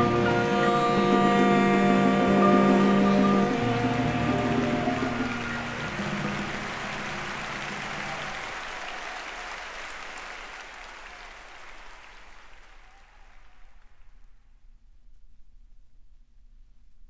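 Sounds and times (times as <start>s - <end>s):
jazz band held notes: 0.0s - 8.9s
audience applause: 0.0s - 14.2s.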